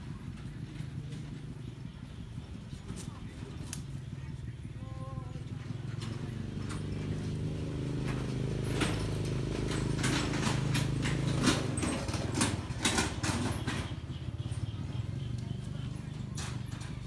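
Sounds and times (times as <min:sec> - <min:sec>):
motor engine running: 0:00.0 - 0:17.0
sharp clicks and rattles: 0:05.7 - 0:17.0.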